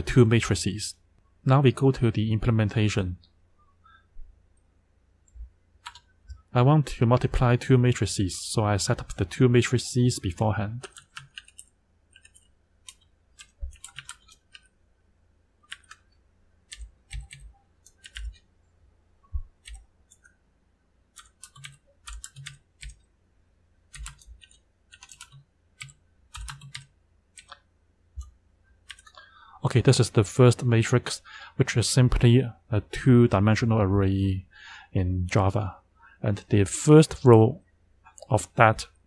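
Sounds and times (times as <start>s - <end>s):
keyboard typing clicks: 5.2s - 6.4s, 10.8s - 14.7s, 15.6s - 18.4s, 19.4s - 20.4s, 21.1s - 23.0s, 23.9s - 27.6s, 28.2s - 29.2s.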